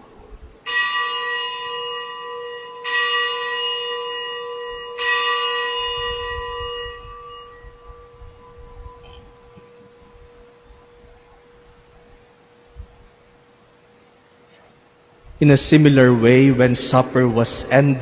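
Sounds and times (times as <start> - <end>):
bell ringing: 0.7 - 10.6.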